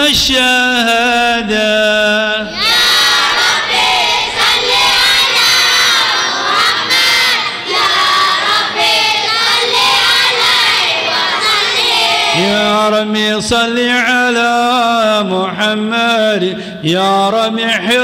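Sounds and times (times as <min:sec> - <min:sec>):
children singing together: 0:02.4 - 0:12.6.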